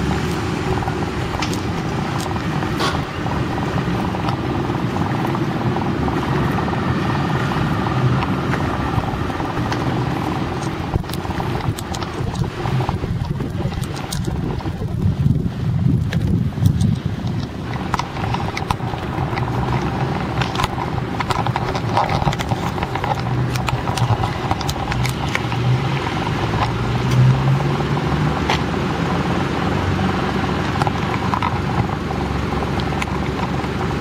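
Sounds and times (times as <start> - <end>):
car engine running: 0.0 - 34.0
street traffic: 0.0 - 34.0
sharp clicks: 9.4 - 15.0, 16.0 - 27.3.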